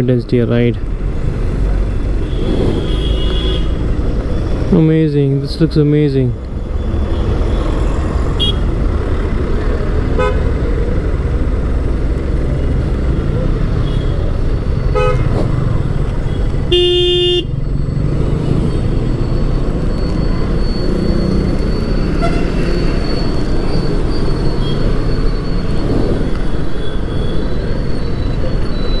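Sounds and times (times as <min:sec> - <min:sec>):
vehicle horn honking: 0:02.2 - 0:03.8, 0:08.4 - 0:08.7, 0:10.2 - 0:10.5, 0:14.9 - 0:15.3, 0:16.7 - 0:17.5, 0:22.1 - 0:22.7.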